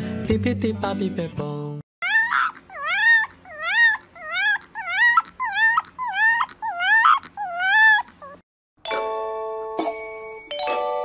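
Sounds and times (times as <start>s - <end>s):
puppy whining howls: 2.0s - 8.4s.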